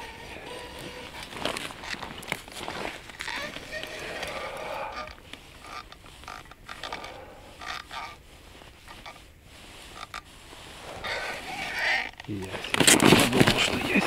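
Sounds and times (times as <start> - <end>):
fishing reel scrapes and squeaks: 3.2 - 8.2.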